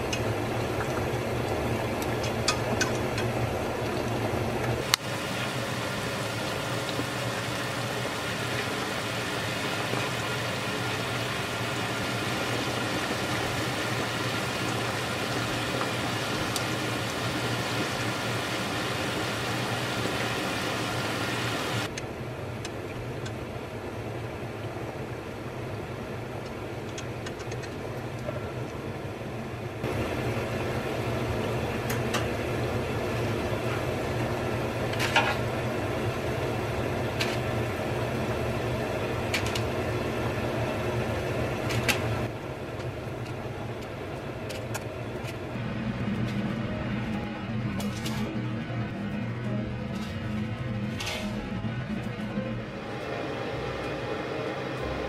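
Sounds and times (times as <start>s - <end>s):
chicken deep-frying in oil: 0.0s - 21.9s, 29.8s - 43.2s.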